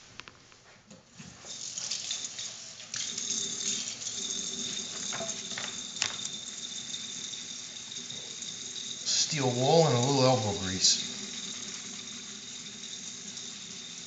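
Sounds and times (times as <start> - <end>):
tap running into sink: 5.0 - 6.4.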